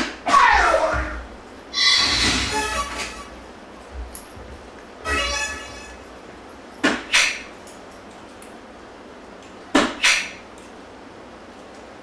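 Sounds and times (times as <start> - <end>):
darts striking electronic dartboard: 6.8 - 7.5, 9.7 - 10.4.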